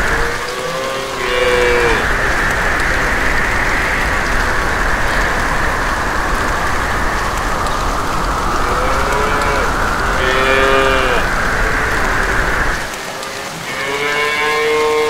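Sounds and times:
rain hissing: 0.0 - 15.0
cow mooing: 0.2 - 2.1, 13.7 - 15.0.

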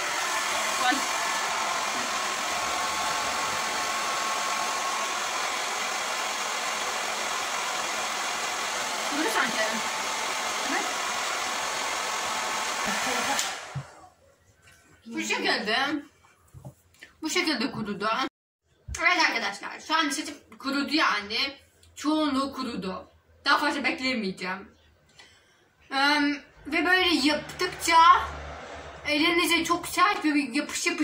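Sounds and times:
hair dryer blowing: 0.0 - 14.1.

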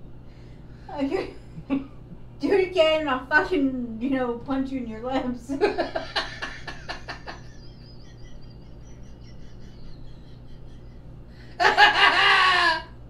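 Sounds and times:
loud burst of laughter: 5.9 - 12.9
wheezy high-pitched laughter: 6.4 - 12.9.

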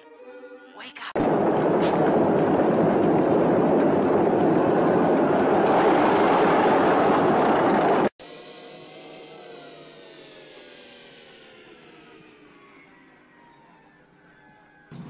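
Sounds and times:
chariot wheels rumbling: 1.2 - 8.1.

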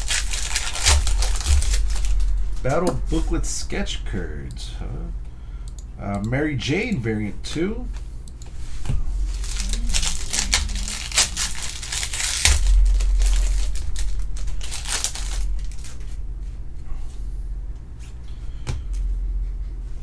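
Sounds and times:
wrapper tearing and crinkling: 0.0 - 2.6, 9.3 - 16.2.

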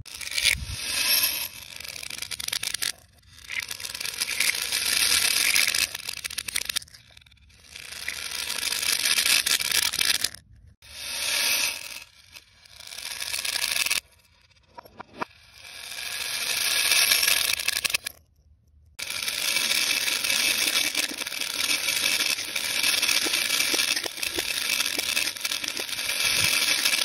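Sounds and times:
reversed beads rattling on table: 0.1 - 14.1, 15.6 - 18.2, 19.0 - 27.0
beads poured from plastic bottle: 19.0 - 27.0.

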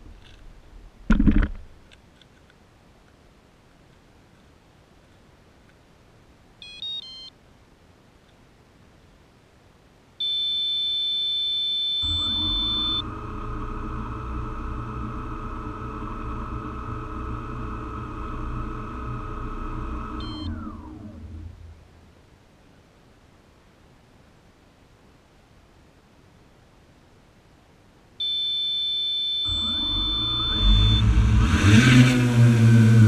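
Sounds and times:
electronic beeps: 6.6 - 7.3, 10.2 - 20.9, 28.2 - 31.2
drone motors whining: 12.0 - 21.9, 28.2 - 33.0.

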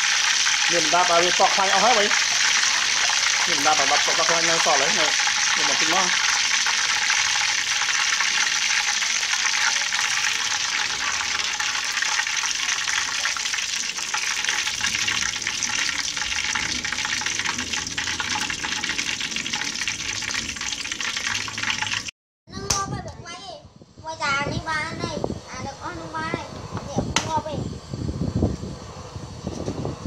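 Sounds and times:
oil sizzling and crackling in a wok: 0.0 - 22.1.

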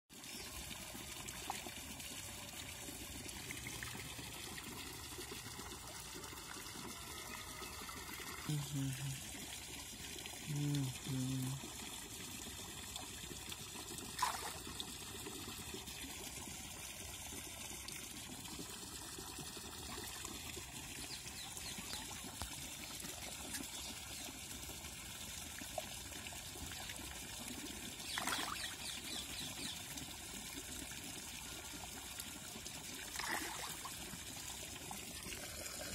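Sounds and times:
water trickling and pouring: 0.1 - 35.9
fish splashing at the surface: 12.8 - 17.4, 28.1 - 28.8, 32.8 - 35.9.

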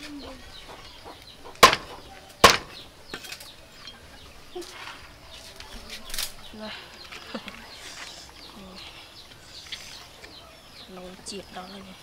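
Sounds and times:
cleaver chopping on wooden board: 1.6 - 2.8.

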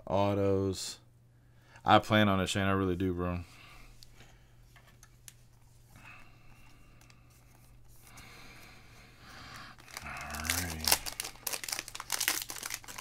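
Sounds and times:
cards and wrapper rustling: 9.5 - 13.0.

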